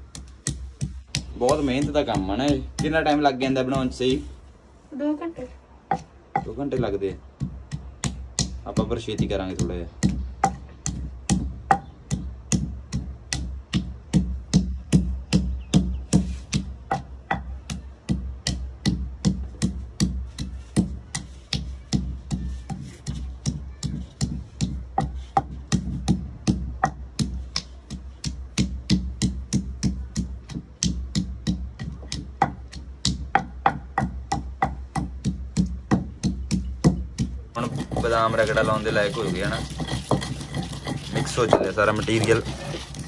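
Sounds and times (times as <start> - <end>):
wooden pestle pounding in mortar: 0.0 - 4.2, 5.9 - 43.0.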